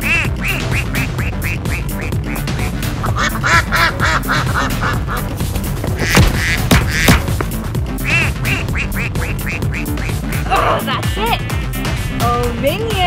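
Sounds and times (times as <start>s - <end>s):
squeaky duck quacks: 0.0s - 5.3s, 8.0s - 12.5s
electronic music with beat: 0.0s - 13.0s.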